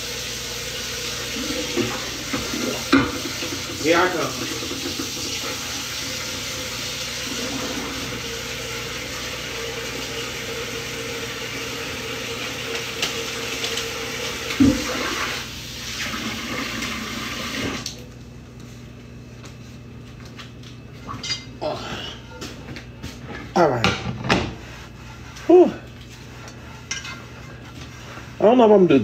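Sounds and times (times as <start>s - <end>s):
tap running into sink: 1.6s - 5.6s, 12.7s - 15.3s.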